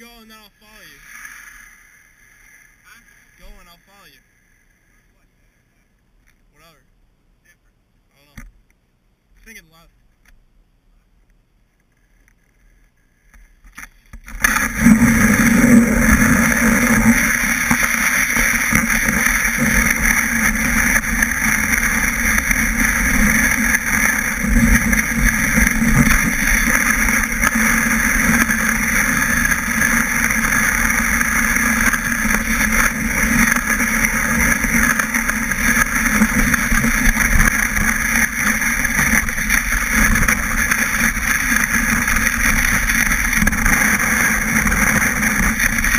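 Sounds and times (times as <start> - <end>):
snowboard scraping over snow: 14.3 - 45.9.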